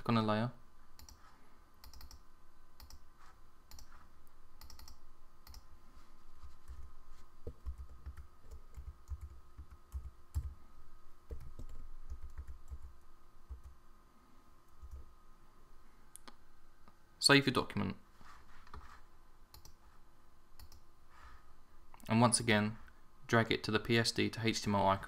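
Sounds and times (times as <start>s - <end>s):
faint steady hum: 0.0s - 25.0s
typing on a keyboard: 1.8s - 2.2s, 7.5s - 10.6s, 11.3s - 13.8s.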